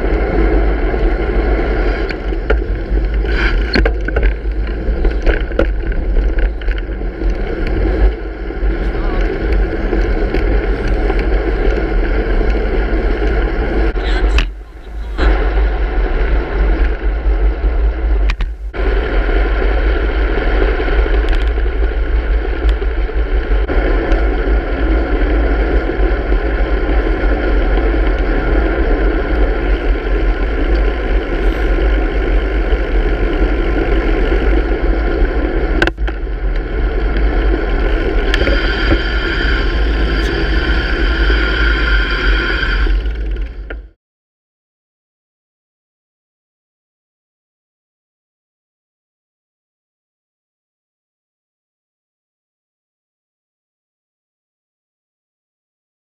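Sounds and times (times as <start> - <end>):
wind buffeting microphone: 0.0 - 43.9
bicycle road noise: 0.0 - 44.0.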